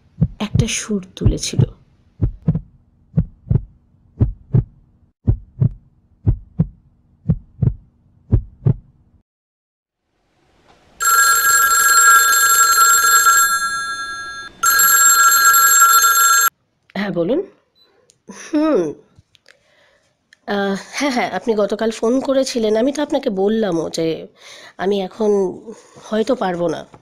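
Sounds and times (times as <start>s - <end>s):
heartbeat thumps: 0.0s - 8.9s
telephone ringing: 11.0s - 16.5s.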